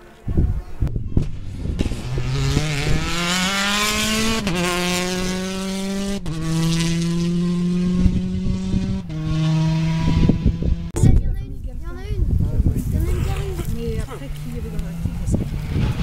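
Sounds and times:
rally car engine accelerating: 0:01.2 - 0:10.9, 0:14.1 - 0:16.0.

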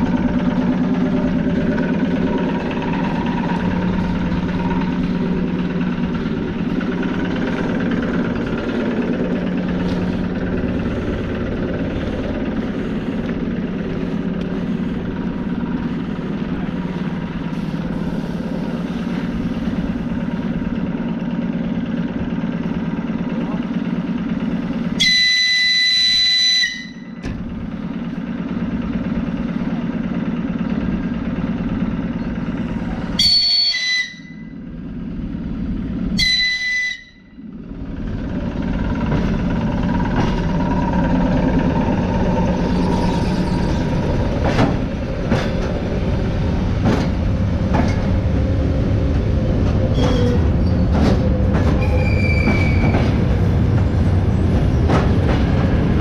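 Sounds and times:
electric train hum: 0:00.0 - 0:56.0
train whistle: 0:25.0 - 0:27.2, 0:33.2 - 0:34.6, 0:36.2 - 0:37.4.

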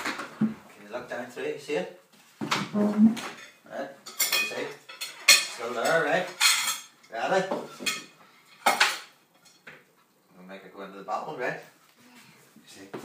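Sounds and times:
dishes and cutlery clattering: 0:02.5 - 0:09.9.

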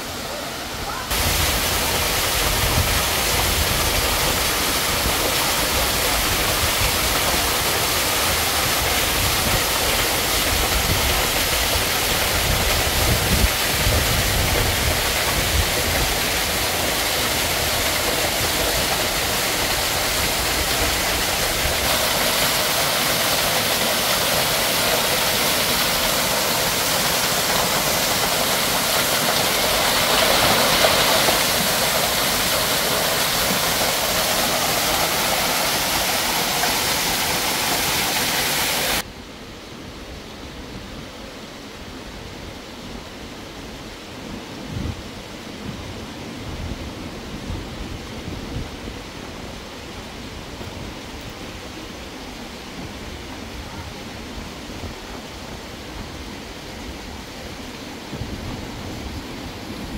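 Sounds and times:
waterfall splashing on rocks: 0:00.0 - 0:39.1.

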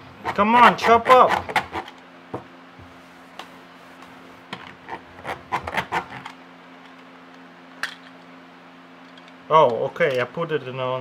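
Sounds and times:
plastic chopper rubbing and rattling: 0:04.8 - 0:06.3.

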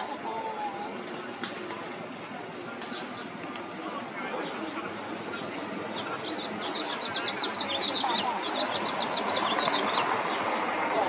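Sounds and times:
murmur of crowd chatter: 0:00.0 - 0:11.0.

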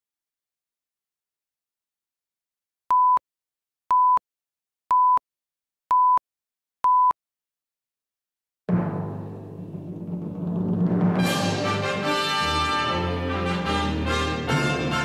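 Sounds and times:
countdown tone beeps: 0:02.9 - 0:03.2, 0:03.9 - 0:04.2, 0:04.9 - 0:05.2, 0:05.9 - 0:06.2, 0:06.8 - 0:07.2
orchestral music with timpani hit: 0:08.7 - 0:15.0.

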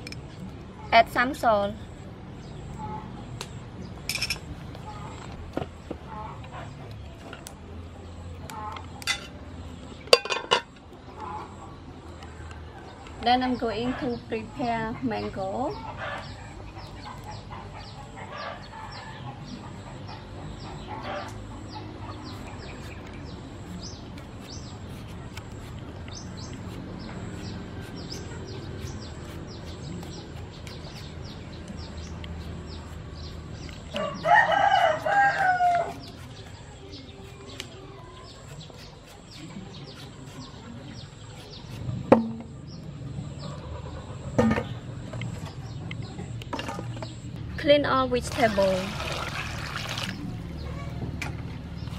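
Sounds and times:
small birds chirping: 0:00.0 - 0:51.9
chickens clucking: 0:37.0 - 0:47.2
fruit knocking in steel bowl: 0:42.1 - 0:42.5.

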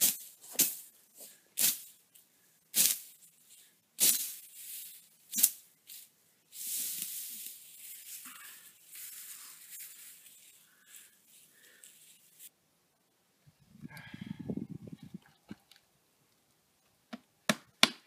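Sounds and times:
dry grass rustling: 0:00.0 - 0:12.5
knife blade slashing dry grass: 0:04.0 - 0:05.6.

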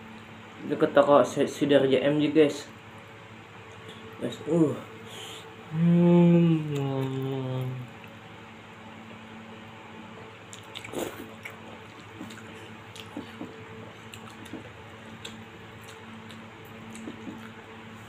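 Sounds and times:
faint hum: 0:00.0 - 0:18.0
wet chewing and slurping: 0:10.5 - 0:17.6.

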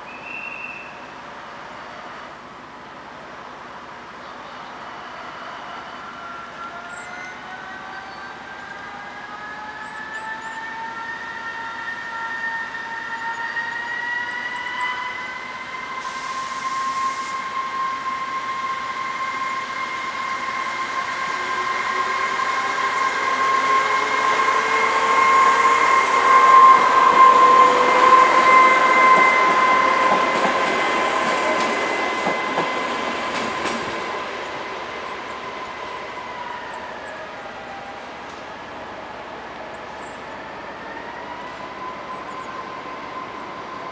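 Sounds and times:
diesel railcar engine whine: 0:00.0 - 0:43.9
brief hiss: 0:16.0 - 0:17.4.

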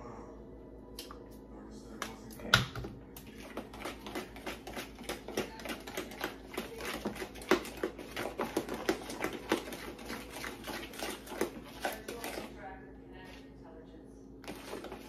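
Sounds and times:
fork beating batter in bowl: 0:01.9 - 0:12.6, 0:14.4 - 0:15.0.

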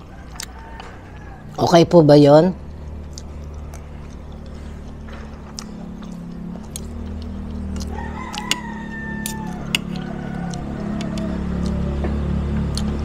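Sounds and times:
rooster crowing: 0:00.0 - 0:01.7, 0:06.0 - 0:13.0
steady low hum: 0:00.0 - 0:13.0.

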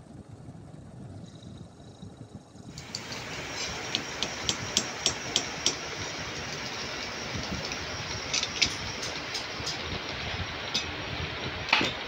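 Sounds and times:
metal lathe running: 0:02.8 - 0:12.0.

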